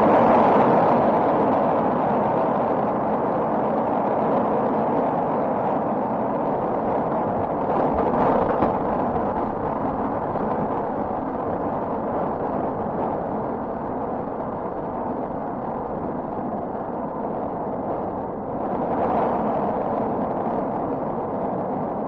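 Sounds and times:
thunder rumbling: 5.9s - 21.7s.

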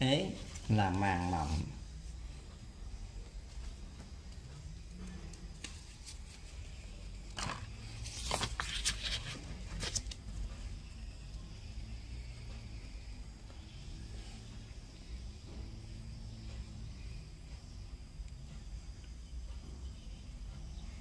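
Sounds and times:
low steady hum: 0.0s - 21.0s
paper rustling: 7.3s - 10.2s.

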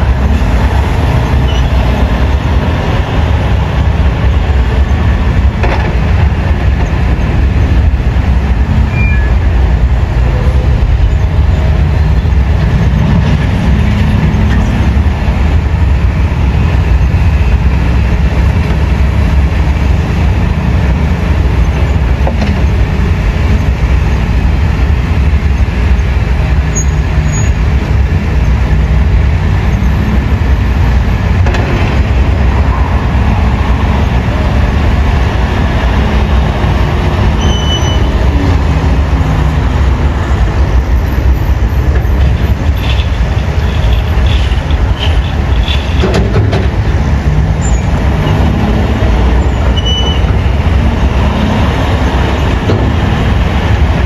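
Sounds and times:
heavy diesel engines rumbling: 0.0s - 54.0s.

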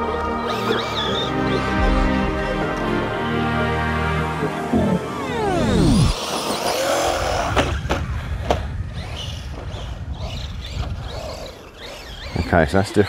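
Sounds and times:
electric motor whining: 0.0s - 13.0s
rumbling noise: 1.4s - 10.2s.

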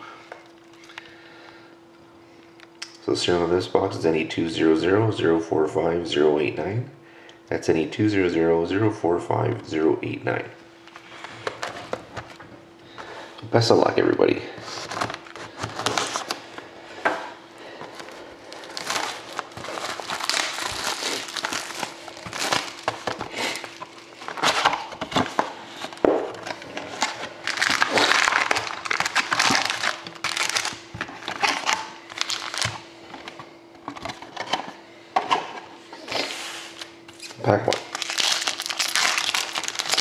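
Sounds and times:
faint steady hum: 0.0s - 40.0s
plastic shrink wrap crinkling: 14.6s - 16.6s, 17.8s - 33.4s, 36.2s - 40.0s
cardboard box rustling: 18.7s - 26.0s.

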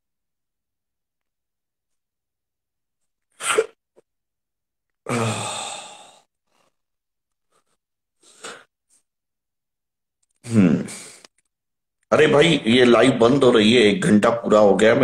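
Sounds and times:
man sighing: 5.0s - 6.3s
short breaths: 7.5s - 9.1s.

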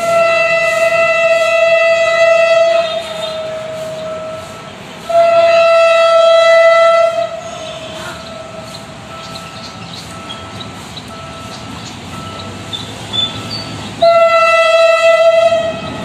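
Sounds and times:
locomotive horn blasts: 0.0s - 9.4s, 12.4s - 16.0s.

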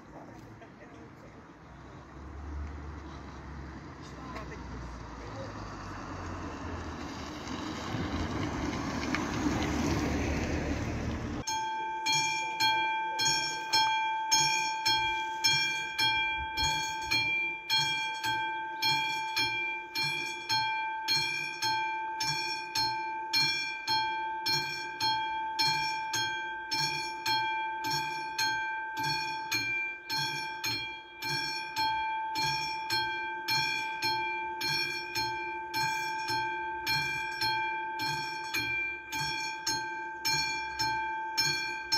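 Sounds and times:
car driving past: 1.6s - 11.4s
level crossing mechanical bell ringing: 11.4s - 41.9s.

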